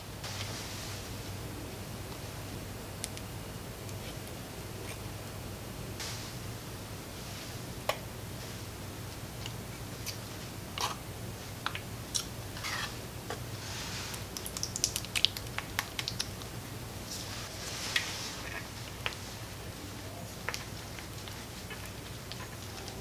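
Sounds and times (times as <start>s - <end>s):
sticky wet squelches: 14.0s - 16.5s.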